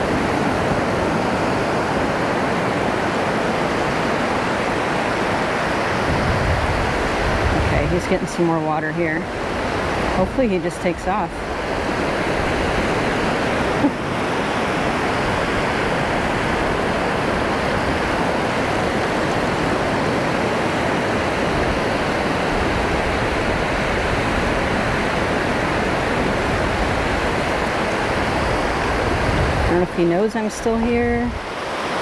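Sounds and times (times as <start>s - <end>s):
waves washing over sand: 0.0s - 32.0s.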